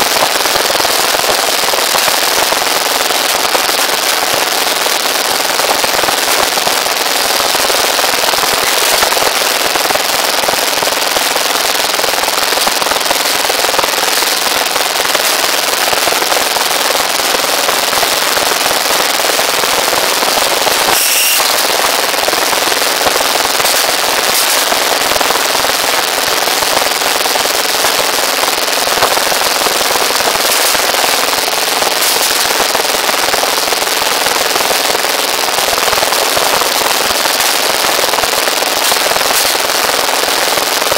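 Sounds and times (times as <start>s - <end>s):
machine rattling clatter: 23.3s - 25.4s, 29.1s - 33.4s, 38.6s - 40.0s.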